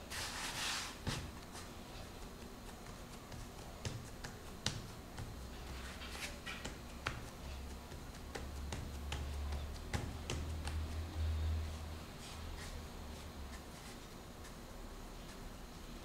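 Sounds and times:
low steady hum: 0.0 - 16.0
hands patting dough on wooden board: 1.0 - 11.4.

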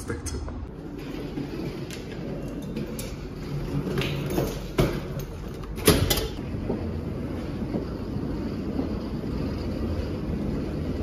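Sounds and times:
steady low hum: 6.4 - 11.0.

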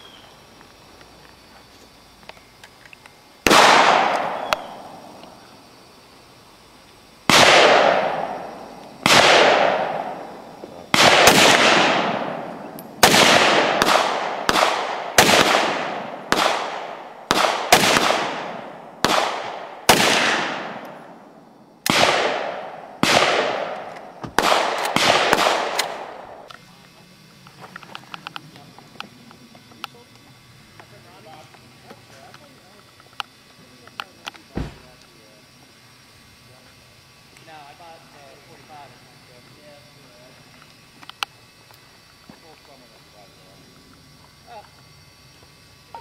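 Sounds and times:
rifle shots with echo: 3.4 - 5.2, 7.3 - 21.2, 21.8 - 26.5.

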